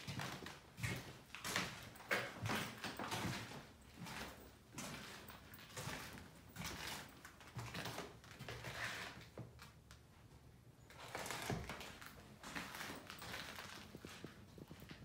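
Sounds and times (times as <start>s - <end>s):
faint footsteps: 11.0s - 15.0s.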